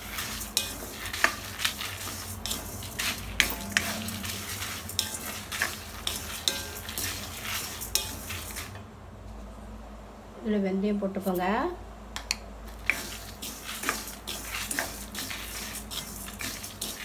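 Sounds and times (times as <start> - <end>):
seeds rattling in pan: 0.0 - 8.8, 12.9 - 17.0
spatula scraping metal pan: 0.0 - 8.8, 12.8 - 17.0.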